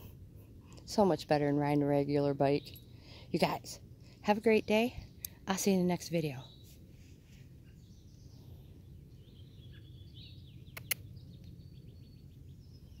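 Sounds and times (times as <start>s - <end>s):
low steady rumble: 0.0s - 13.0s
small birds chirping: 0.0s - 13.0s
sharp clicks: 10.7s - 11.6s.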